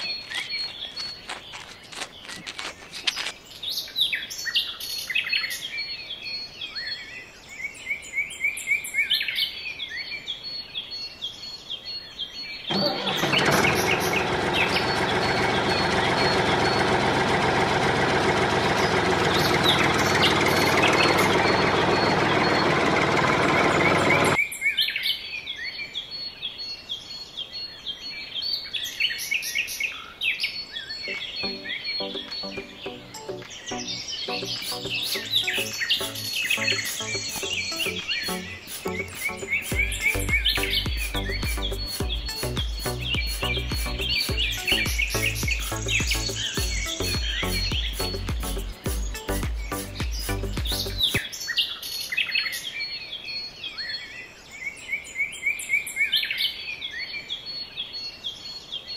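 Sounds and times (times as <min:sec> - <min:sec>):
birds chirping and twittering: 0:00.0 - 0:58.9
loud steady motor noise: 0:12.7 - 0:24.4.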